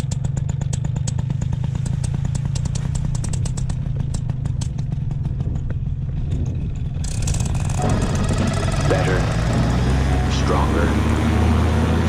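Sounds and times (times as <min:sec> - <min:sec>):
rapid irregular clicks: 0:00.0 - 0:05.0, 0:07.0 - 0:09.8
paramotor engine idling: 0:00.0 - 0:11.0.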